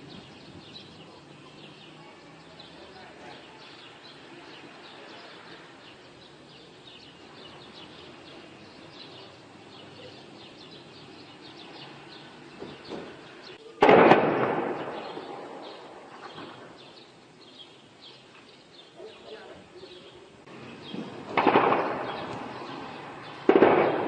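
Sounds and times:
shell explosion with rumbling echo: 13.8 - 16.8, 20.9 - 22.5, 23.4 - 24.0.

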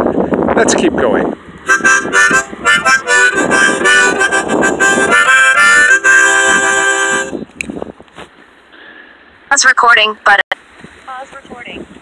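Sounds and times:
harmonica playing: 1.6 - 7.4.

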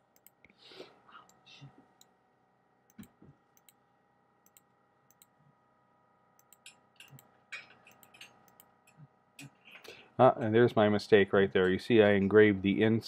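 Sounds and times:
room tone hum: 0.0 - 13.0
computer mouse clicks: 0.1 - 0.4, 2.9 - 3.8, 4.4 - 5.3, 6.4 - 9.6.

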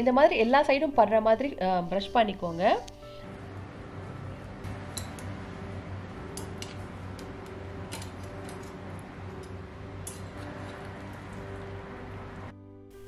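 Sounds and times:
steady low hum: 3.0 - 12.5
metal tongs clicking on oven rack: 4.7 - 5.4, 6.3 - 11.4.

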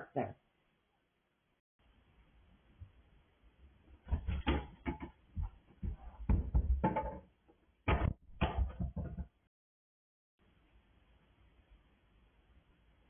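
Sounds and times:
dull knocks and thumps: 4.0 - 7.3, 7.9 - 9.4.

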